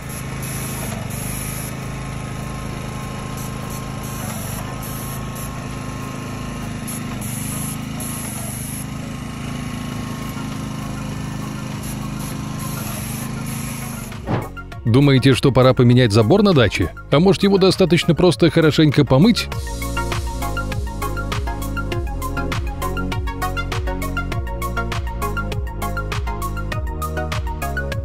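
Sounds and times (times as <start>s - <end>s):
spray gun hissing bursts: 0.0s - 14.6s, 19.5s - 23.5s
paint sprayer pump running: 0.0s - 28.0s.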